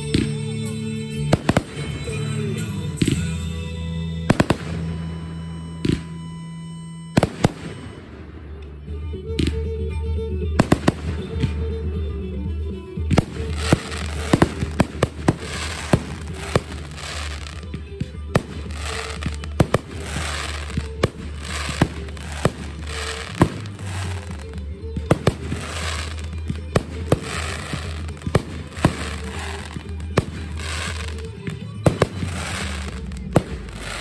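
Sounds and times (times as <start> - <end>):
music: 0.0 - 34.0
fireworks bangs: 1.3 - 3.4, 4.3 - 6.2, 7.2 - 8.6, 10.6 - 11.6, 13.1 - 34.0
fireworks hiss: 13.2 - 17.6, 18.4 - 31.3, 31.9 - 34.0.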